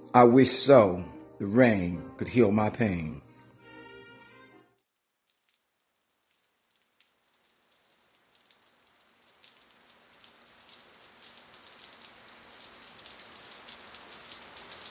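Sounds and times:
rain falling: 0:04.8 - 0:14.9.

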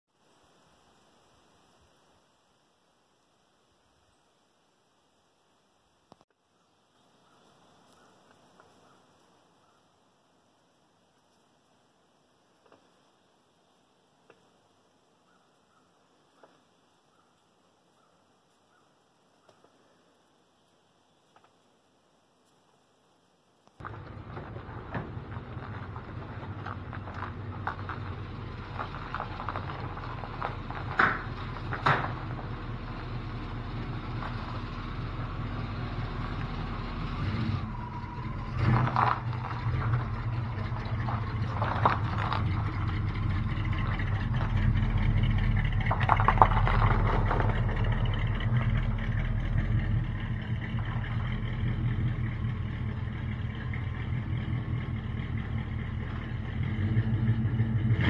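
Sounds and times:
truck engine idling: 0:23.8 - 0:58.0.

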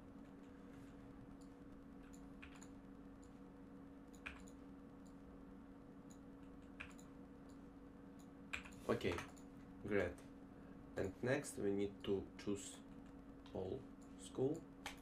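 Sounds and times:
low steady hum: 0:00.0 - 0:15.0
computer mouse clicks: 0:01.3 - 0:03.4, 0:04.1 - 0:05.2, 0:06.1 - 0:09.5, 0:13.0 - 0:15.0.

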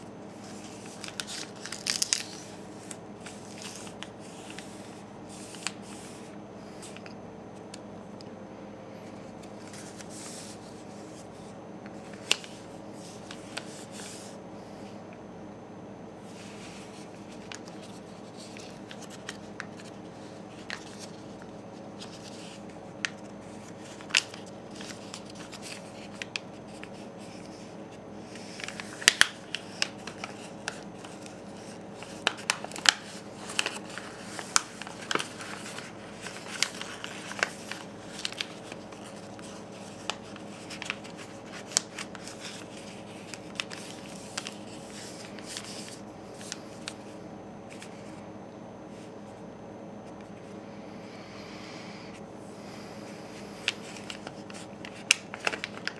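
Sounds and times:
low background hum: 0:00.0 - 0:55.9
paper being folded and creased: 0:00.4 - 0:06.2, 0:09.5 - 0:14.3, 0:16.3 - 0:47.0, 0:53.6 - 0:55.9.

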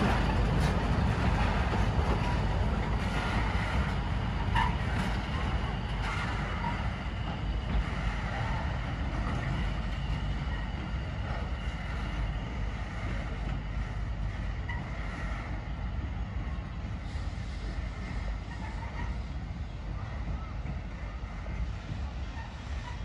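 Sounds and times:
steam train rumbling: 0:00.0 - 0:23.0.

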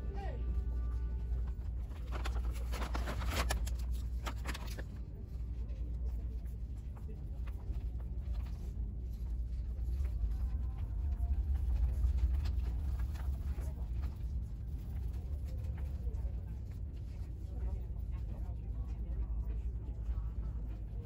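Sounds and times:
low background rumble: 0:00.0 - 0:21.0
rustling and handling clicks: 0:01.9 - 0:05.0.

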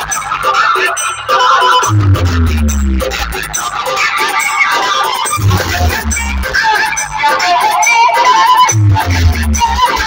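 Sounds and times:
electronic dance music: 0:00.0 - 0:10.0
heavy deep bass hits: 0:05.4 - 0:06.4.

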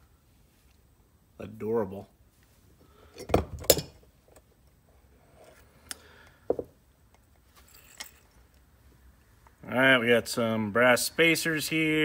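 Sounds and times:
metal tools knocking and clicking: 0:03.2 - 0:04.0.

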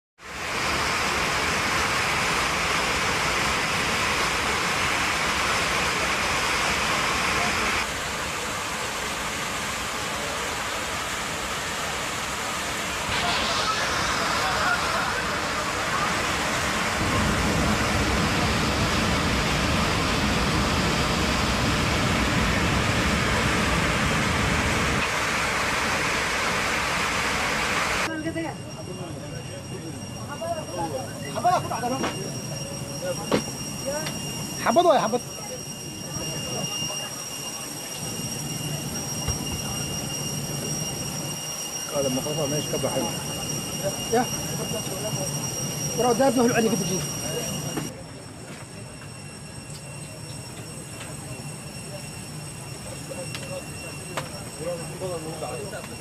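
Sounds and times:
loud rush of air in cabin: 0:00.2 - 0:28.1
plane engine rumble: 0:00.2 - 0:34.6.

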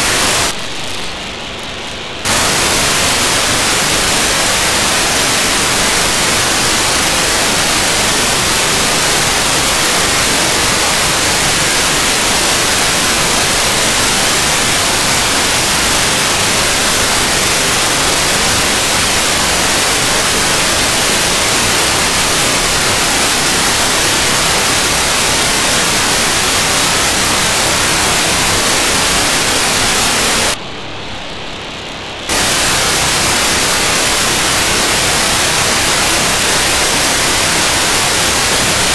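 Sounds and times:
radio receiver static: 0:00.0 - 0:38.9
telemetry packet burst: 0:02.2 - 0:30.6.

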